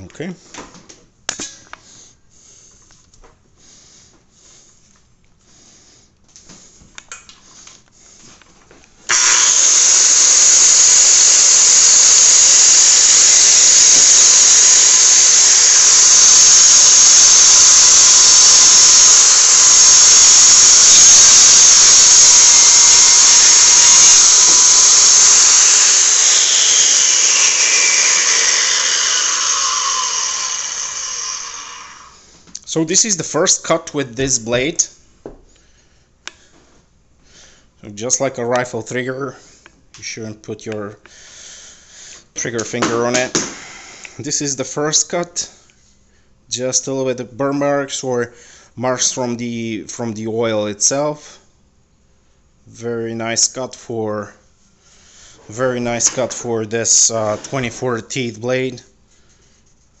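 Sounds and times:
circular saw running: 9.1 - 32.2.

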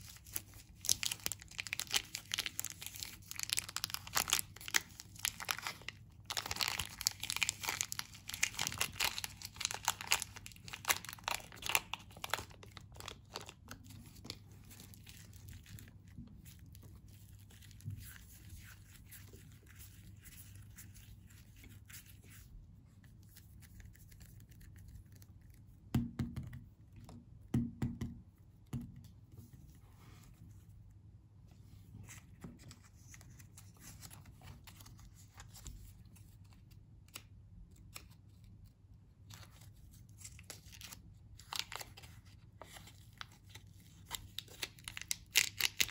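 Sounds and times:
plastic wrapper crinkling and tearing: 0.0 - 20.8, 39.2 - 45.9.

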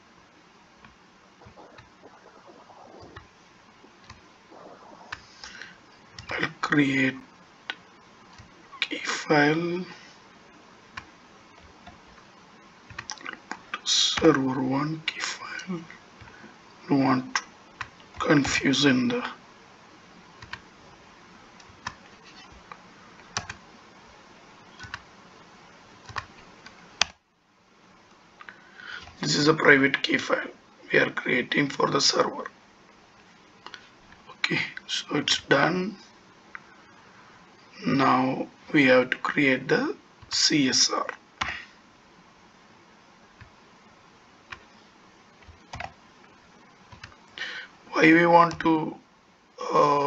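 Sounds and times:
faint hiss: 0.0 - 50.0
computer keyboard typing: 12.9 - 13.6, 20.4 - 20.6, 21.6 - 22.7, 23.3 - 23.6, 24.8 - 25.0, 26.0 - 27.2, 45.4 - 46.0, 46.9 - 47.2.

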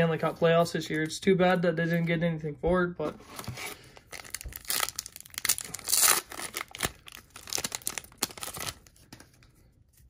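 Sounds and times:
card pack wrapper tearing: 4.1 - 9.0.

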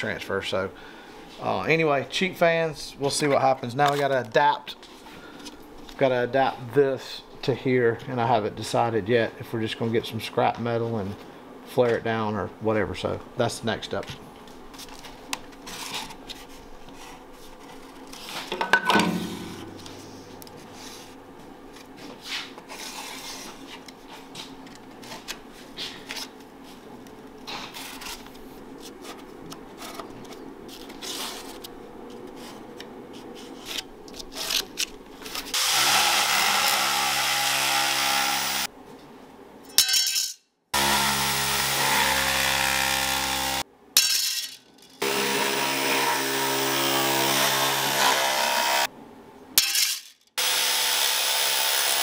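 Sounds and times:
electric metal shear cutting: 35.5 - 38.7, 40.8 - 43.6, 45.0 - 48.9, 50.4 - 52.0.

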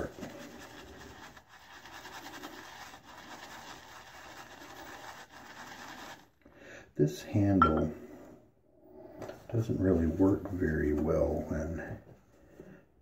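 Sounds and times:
shaving brush scrubbing soap: 0.0 - 6.4.

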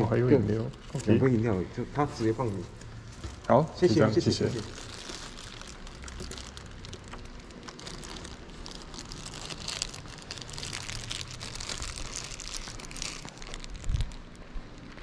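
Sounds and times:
plastic bag rustling: 4.0 - 15.0.

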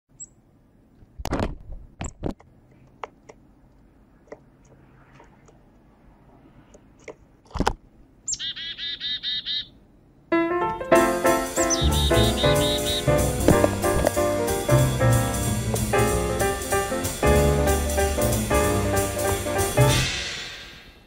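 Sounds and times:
chickadee calling: 0.1 - 0.4, 8.2 - 9.8, 10.7 - 16.6
faint bird chips: 8.3 - 9.7, 11.6 - 13.2.

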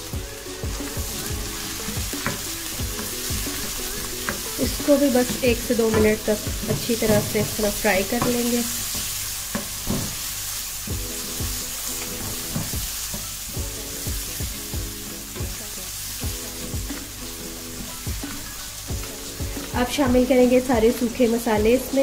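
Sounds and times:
vegetables sizzling in oil: 0.0 - 22.0
wooden spoon knocking against pan: 5.2 - 10.2.

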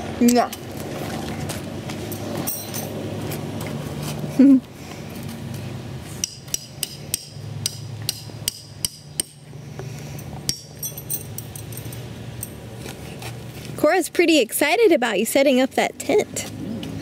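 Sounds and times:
tent stakes being hammered: 6.2 - 9.5, 10.4 - 10.8.

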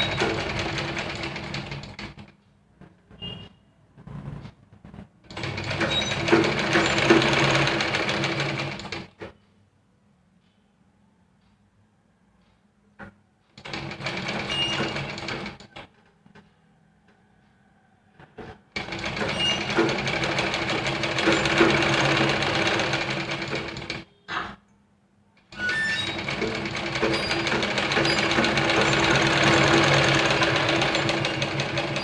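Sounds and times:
sewing machine stitching: 0.0 - 2.3, 5.2 - 9.1, 13.6 - 15.9, 18.7 - 24.1, 25.5 - 32.0.

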